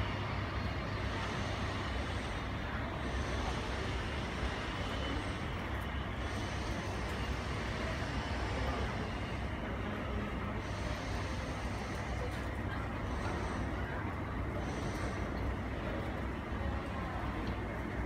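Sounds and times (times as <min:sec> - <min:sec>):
airport apron rumble: 0:00.0 - 0:18.0.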